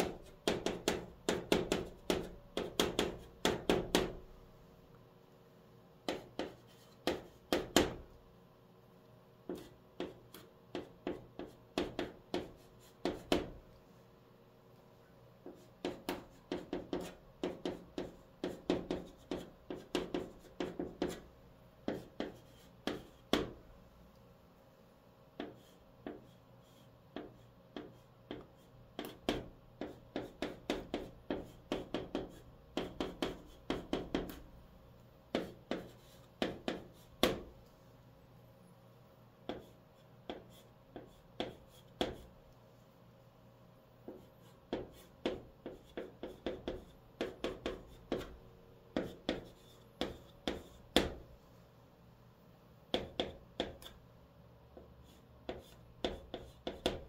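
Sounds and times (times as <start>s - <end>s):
chalk writing on chalkboard: 0.0s - 4.2s, 6.0s - 8.1s, 9.4s - 13.6s, 15.4s - 23.6s, 25.4s - 34.5s, 35.3s - 37.5s, 39.4s - 42.4s, 44.0s - 51.3s, 52.9s - 54.0s, 54.8s - 57.0s.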